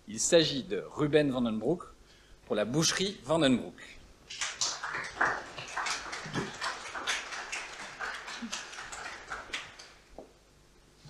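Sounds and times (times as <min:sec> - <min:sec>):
audience applause: 0:04.3 - 0:10.1.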